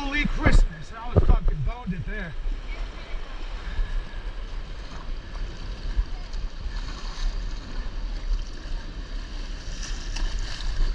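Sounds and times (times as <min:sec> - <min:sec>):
low rumble on microphone: 0:00.0 - 0:10.9.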